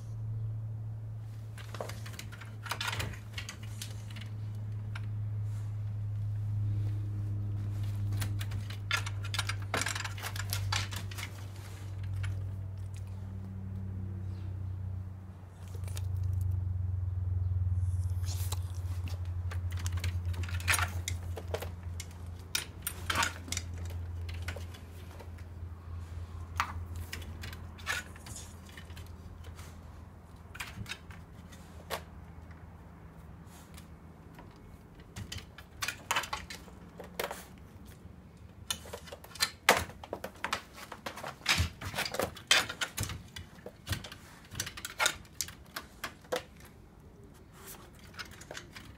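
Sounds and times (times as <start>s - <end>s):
low steady hum: 0.0s - 48.9s
dog scrabbling at wooden doghouse: 38.8s - 46.6s.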